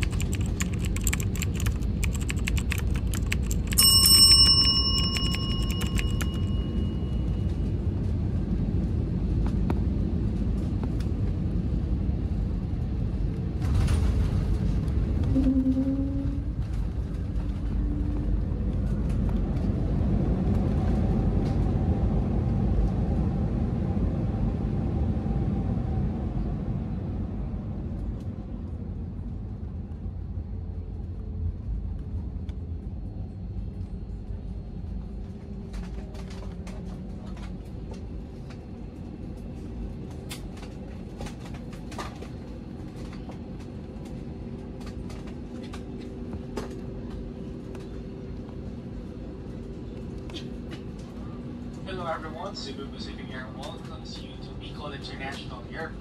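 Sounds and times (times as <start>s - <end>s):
clicks and rattles: 0.0s - 6.5s
airliner cabin rumble: 0.0s - 56.0s
cabin chime ding: 3.7s - 7.5s.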